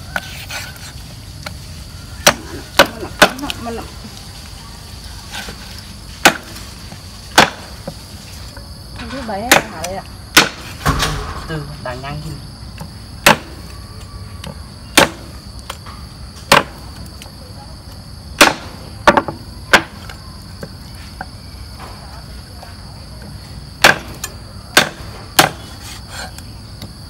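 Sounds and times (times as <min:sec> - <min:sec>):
high insect drone: 0:00.0 - 0:27.0.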